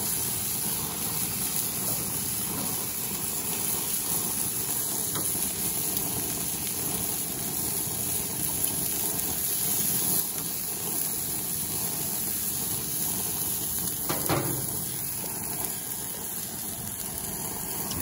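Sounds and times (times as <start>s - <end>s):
octopus sizzling on grill: 0.0s - 18.0s
metal tongs knocking: 14.1s - 15.1s.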